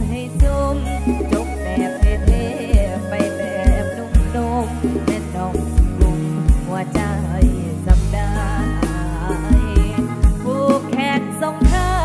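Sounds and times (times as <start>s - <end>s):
live band music: 0.0s - 12.0s
wavering melody line: 0.6s - 5.0s.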